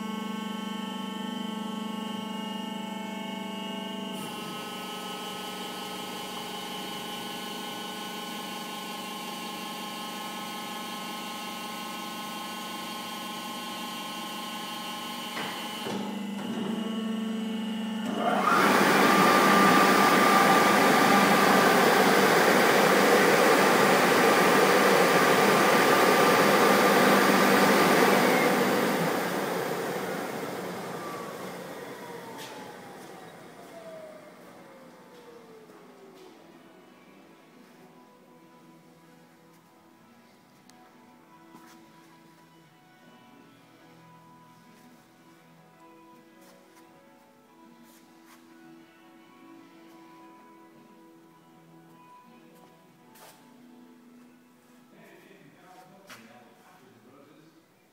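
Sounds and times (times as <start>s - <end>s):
air blower rushing and whining: 18.1s - 34.8s.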